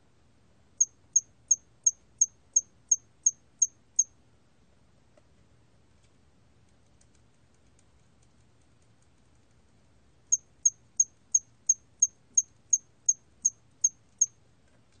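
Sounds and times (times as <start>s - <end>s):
cricket chirping: 0.8s - 4.1s, 10.3s - 14.4s.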